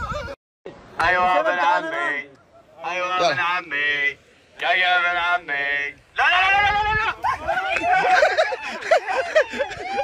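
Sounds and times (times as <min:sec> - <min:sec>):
man yelling: 0:06.1 - 0:10.0
group of men laughing: 0:07.0 - 0:10.0.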